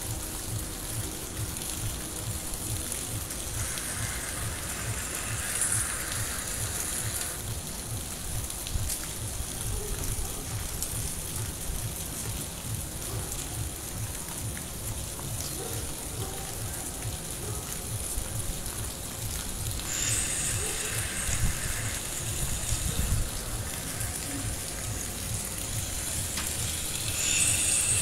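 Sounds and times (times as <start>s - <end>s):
distant music bass beat: 0.0s - 28.0s
heavy rain on rooftops: 0.0s - 28.0s
water running off: 0.0s - 28.0s.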